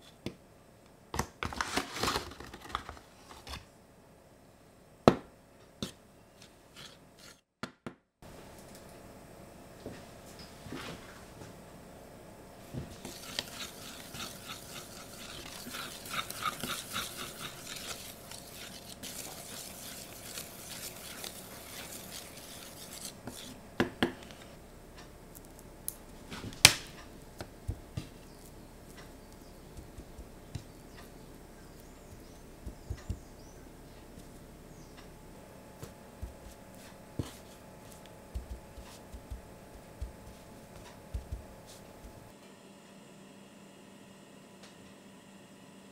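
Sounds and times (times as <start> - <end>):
utensil scraping metal tray: 12.9 - 23.6
tongs clicking and patting: 32.0 - 33.3, 38.0 - 42.3.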